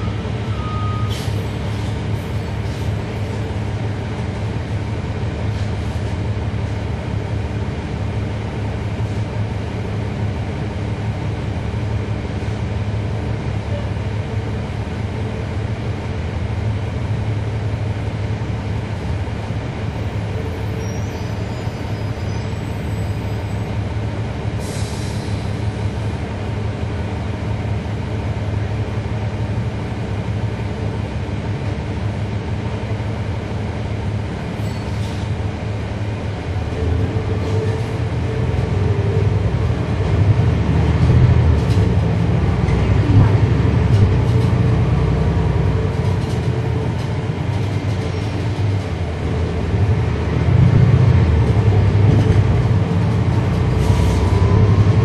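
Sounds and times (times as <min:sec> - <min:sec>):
bus diesel engine running: 0:00.0 - 0:55.0.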